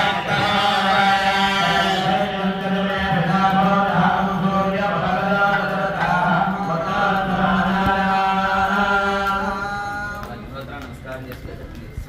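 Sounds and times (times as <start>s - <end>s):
priests chanting in a low drone: 0.0s - 12.0s.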